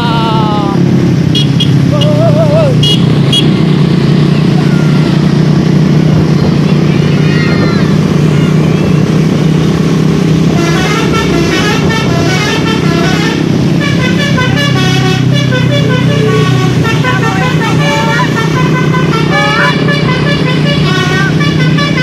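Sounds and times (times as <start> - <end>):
engine drone: 0.0 - 22.0
bus horn playing a tune: 1.3 - 2.2, 2.8 - 3.6, 10.5 - 22.0.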